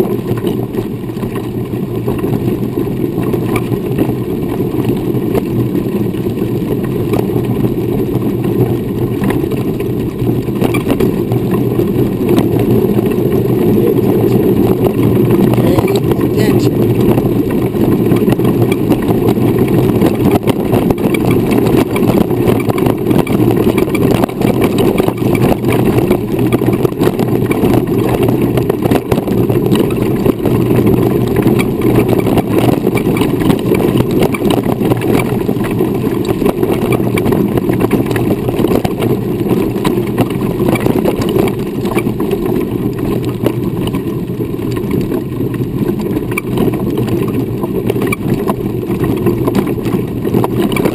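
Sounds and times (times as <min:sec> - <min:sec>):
wheelchair rolling over dirt: 0:00.0 - 0:50.9
small knocks and rattles: 0:17.0 - 0:50.9.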